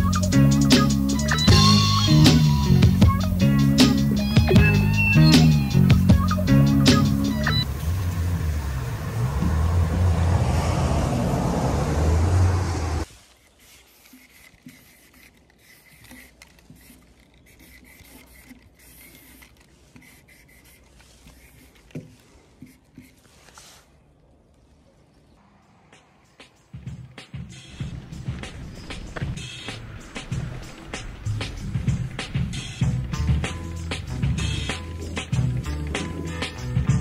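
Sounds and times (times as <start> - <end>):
background music: 0.0 - 8.4, 25.4 - 37.0
marker scratching on box: 13.5 - 22.0.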